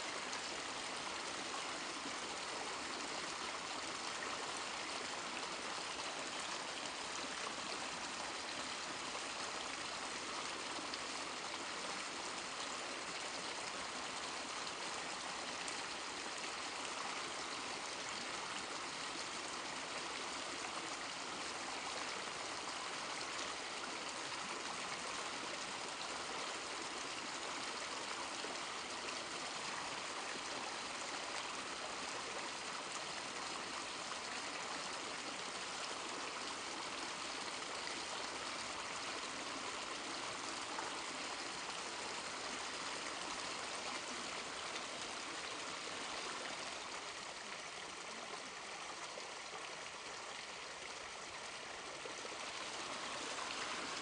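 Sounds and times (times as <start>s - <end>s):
waterfall rushing water: 51.1s - 54.0s.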